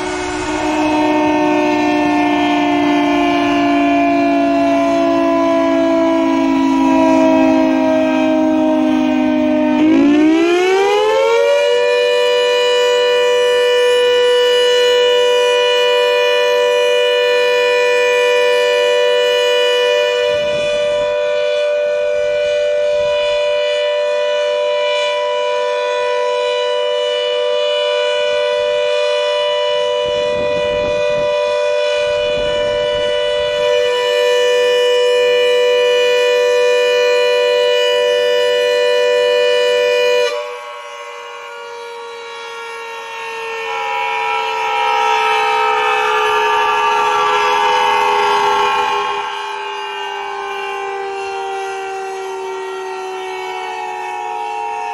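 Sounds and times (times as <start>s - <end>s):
air raid siren wailing: 0.0s - 54.9s.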